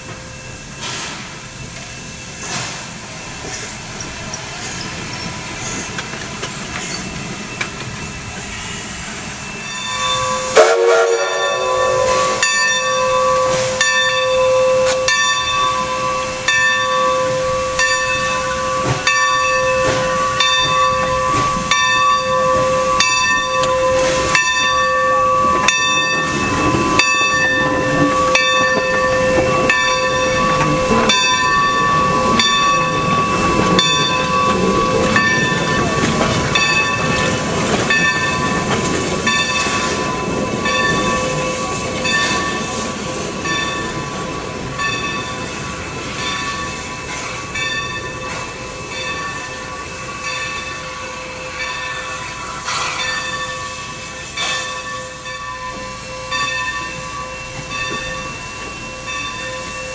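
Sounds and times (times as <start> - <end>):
locomotive bell ringing: 0.0 - 59.9
steam hissing: 0.0 - 59.9.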